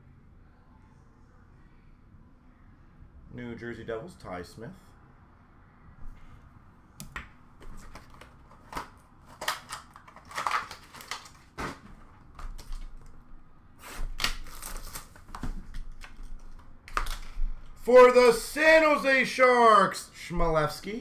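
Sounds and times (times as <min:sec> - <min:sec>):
packaging clicks and knocks: 0:07.6 - 0:13.1
packaging rustling: 0:07.6 - 0:13.2, 0:14.0 - 0:17.8.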